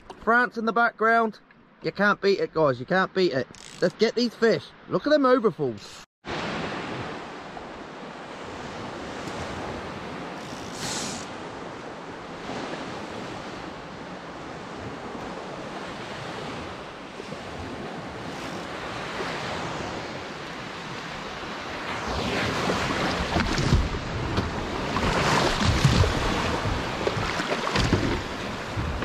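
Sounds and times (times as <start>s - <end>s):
wind buffeting camera: 8.4s - 29.0s
sea water washing: 15.4s - 29.0s.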